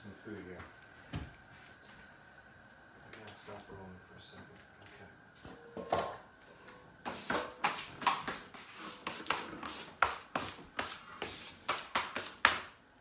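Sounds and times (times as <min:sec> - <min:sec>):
bench scraper scraping countertop: 0:07.1 - 0:12.5.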